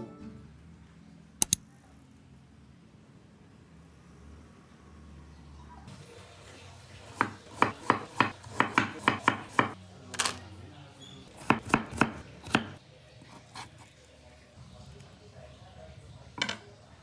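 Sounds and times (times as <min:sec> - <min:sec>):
knife chopping on wooden board: 0:07.2 - 0:09.8, 0:11.4 - 0:12.8.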